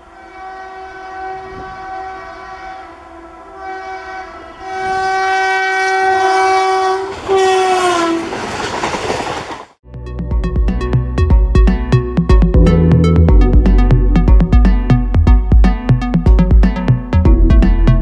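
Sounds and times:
locomotive horn blasts: 0:00.0 - 0:08.3.

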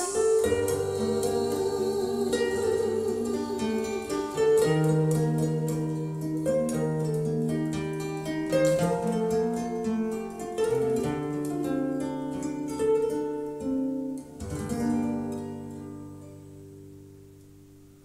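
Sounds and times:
plucked instrumental music: 0:00.0 - 0:18.0.

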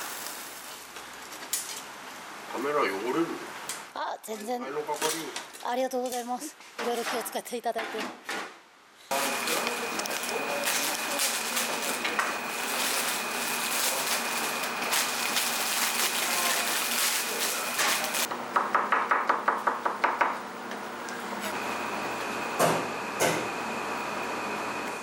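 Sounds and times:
steady hiss: 0:00.0 - 0:03.6.

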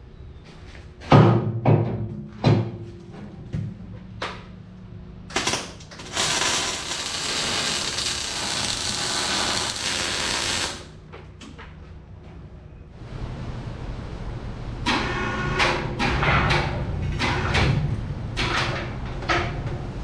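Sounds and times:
welding arc crackling hiss: 0:05.3 - 0:11.0.

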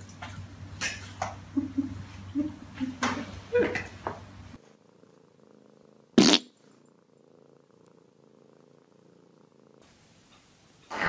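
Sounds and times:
cat purring: 0:00.0 - 0:11.0.

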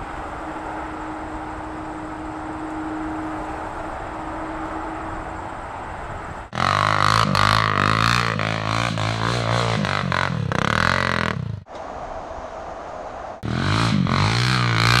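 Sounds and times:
quad engine revving: 0:06.5 - 0:11.6, 0:13.4 - 0:15.0.

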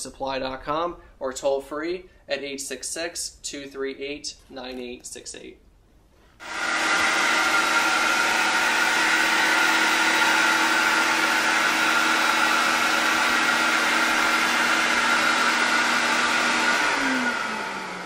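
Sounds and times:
vacuum motor rushing hum: 0:06.4 - 0:18.0.

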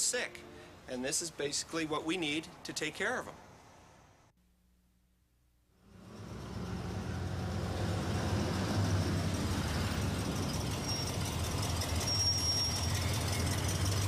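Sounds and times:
truck engine running low: 0:05.8 - 0:14.0
short high brake squeal: 0:10.5 - 0:14.0.

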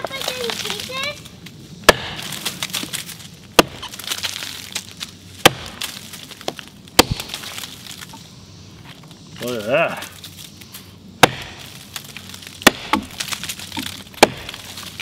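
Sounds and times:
axe chopping into log: 0:01.8 - 0:02.9, 0:03.6 - 0:04.1, 0:05.4 - 0:07.6, 0:11.2 - 0:11.6, 0:12.6 - 0:15.0.

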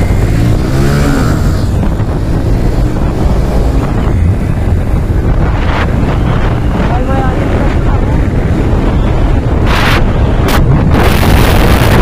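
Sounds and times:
motorcycle engine accelerating: 0:00.0 - 0:12.0
wind buffeting microphone: 0:00.0 - 0:12.0.

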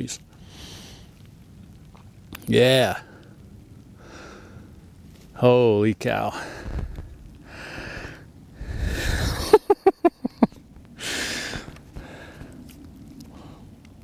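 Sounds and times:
man breathing hard: 0:04.0 - 0:04.8, 0:06.3 - 0:09.4, 0:11.0 - 0:12.7
man laughing: 0:09.0 - 0:10.6.

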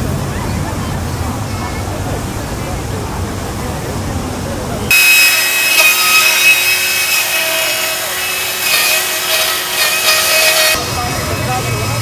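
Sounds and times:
chainsaw cutting wood: 0:04.9 - 0:10.8.

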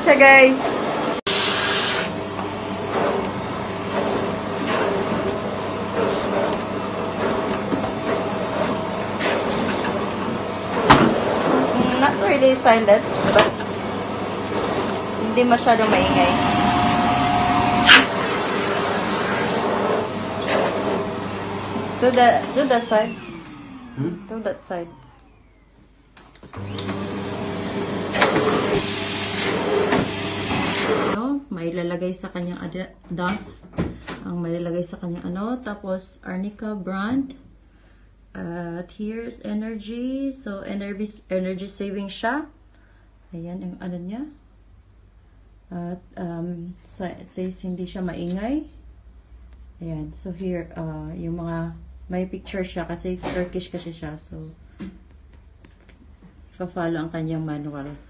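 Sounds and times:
vacuum cleaner running: 0:00.0 - 0:31.2.

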